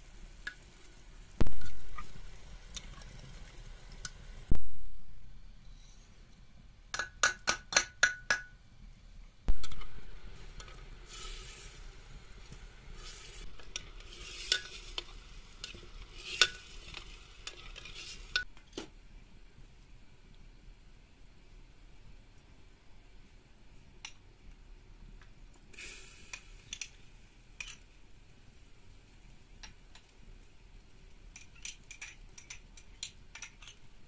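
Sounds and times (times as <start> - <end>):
spoon stirring and scraping pot: 1.5 - 3.2, 9.5 - 18.5, 31.3 - 33.8.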